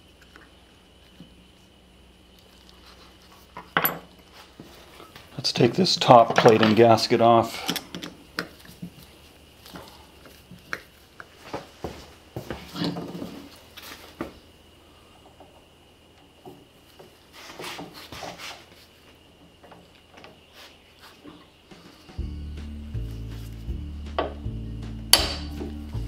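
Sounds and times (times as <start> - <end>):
metal parts knocking on workbench: 3.8 - 4.1.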